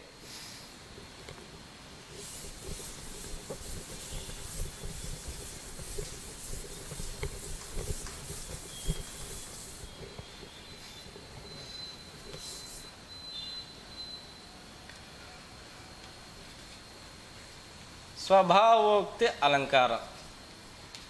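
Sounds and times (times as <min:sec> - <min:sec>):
cloth rubbing chalkboard: 0:02.0 - 0:12.9.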